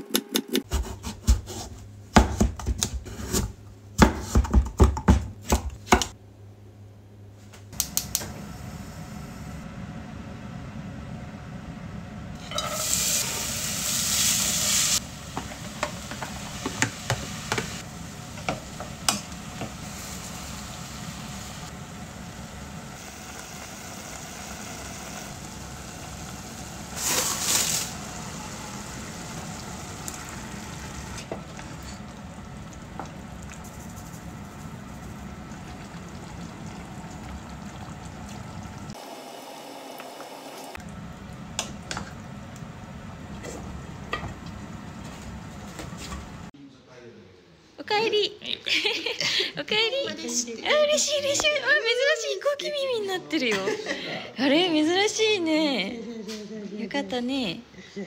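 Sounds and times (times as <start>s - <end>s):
vegetables sizzling in a pot: 12.4s - 46.5s
wooden spoon stirring: 31.3s - 35.8s.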